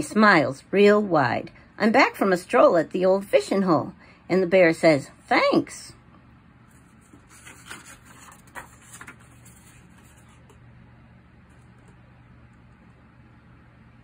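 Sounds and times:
paper page rustling: 6.6 - 10.7.

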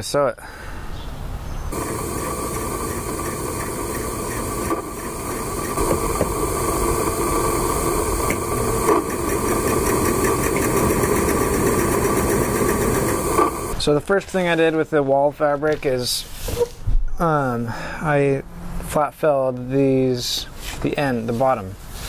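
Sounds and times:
sewing machine running: 1.7 - 13.8.

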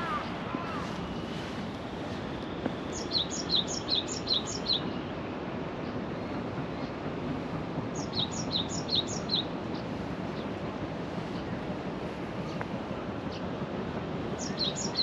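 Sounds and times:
songbird high chirps: 0.0 - 5.1, 8.0 - 10.5, 14.4 - 15.0
steady background noise: 0.0 - 15.0.

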